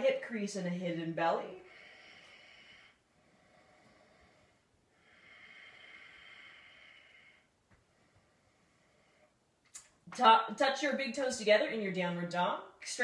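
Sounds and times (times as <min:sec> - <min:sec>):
person breathing slowly: 0:01.6 - 0:09.5.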